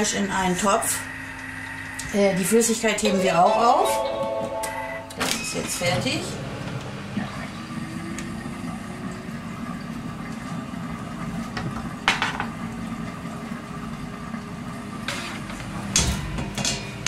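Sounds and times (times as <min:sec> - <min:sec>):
low appliance hum: 0:00.0 - 0:17.0
cookware clattering: 0:12.0 - 0:12.5, 0:15.1 - 0:17.0.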